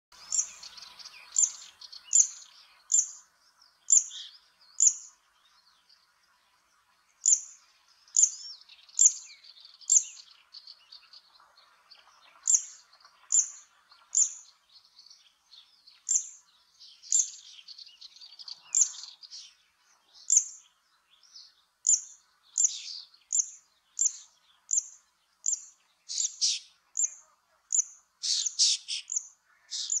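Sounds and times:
bird singing sharp zit notes: 25.5s - 27.1s, 28.2s - 30.0s.

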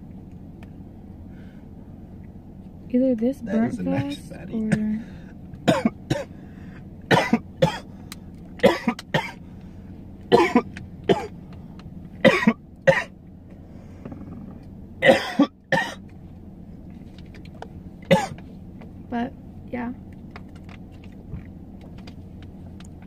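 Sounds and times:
man coughing: 5.7s - 6.3s, 7.1s - 7.9s, 8.6s - 9.4s, 10.3s - 11.4s, 12.2s - 13.1s, 15.0s - 16.0s, 18.1s - 18.4s.

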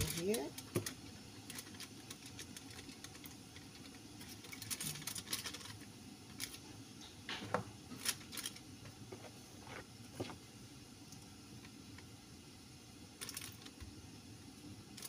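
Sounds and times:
aluminium foil crinkling: 0.0s - 6.7s, 7.9s - 9.0s, 13.2s - 13.8s.

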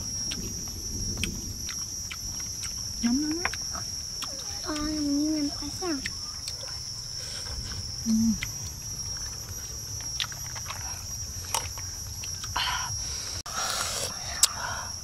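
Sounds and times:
high-pitched insect drone: 0.0s - 15.0s
clicks and rustles: 8.5s - 12.5s.

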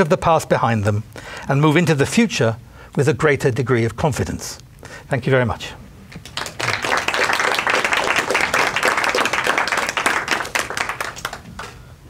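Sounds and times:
audience applauding: 6.2s - 11.8s.

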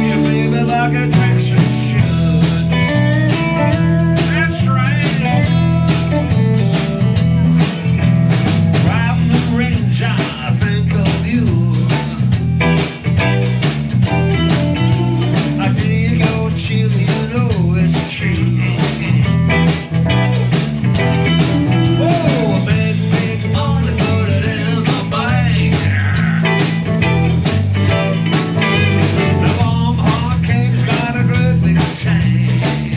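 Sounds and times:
bent electric guitar notes: 0.0s - 32.9s
blues-rock band playing: 0.0s - 32.9s.

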